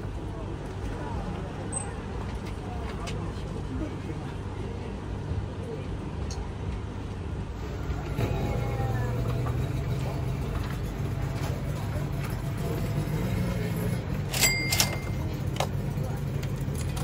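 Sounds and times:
coins clinking into coin slot: 0:14.2 - 0:15.8.

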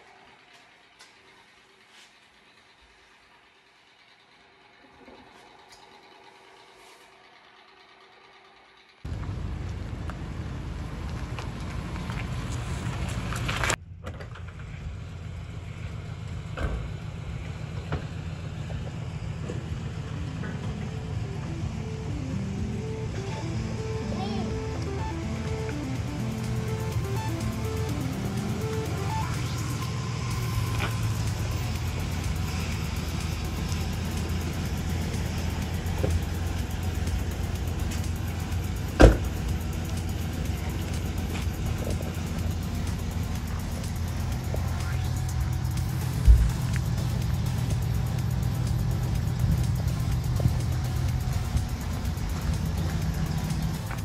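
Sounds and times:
pickup engine idling: 0:00.0 - 0:54.0
low rumble: 0:09.1 - 0:54.0
car door slamming: 0:39.0 - 0:39.3.

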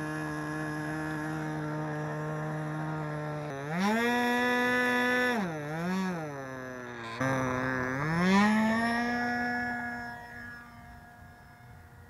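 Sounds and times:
model engine revving: 0:00.0 - 0:12.0.

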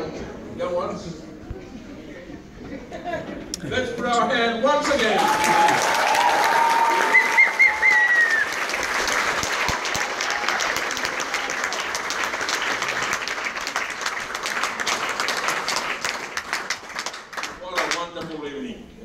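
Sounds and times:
audience applauding: 0:04.8 - 0:18.1.

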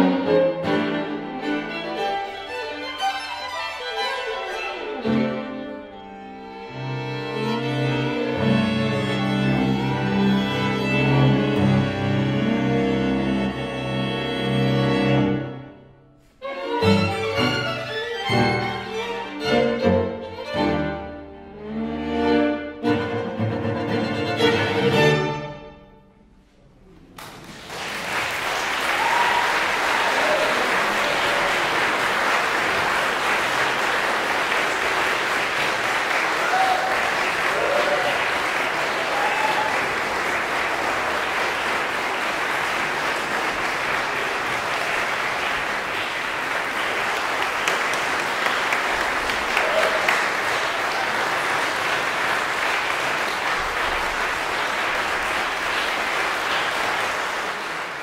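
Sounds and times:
audience applause: 0:27.1 - 0:58.0.

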